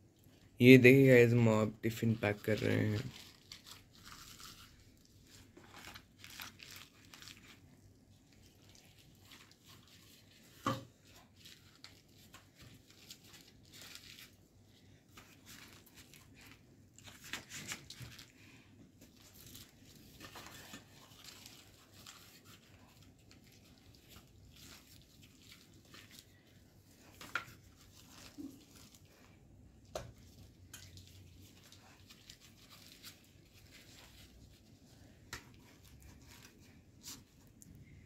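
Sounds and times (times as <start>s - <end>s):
flatbread tearing and rustling: 2.0s - 38.0s.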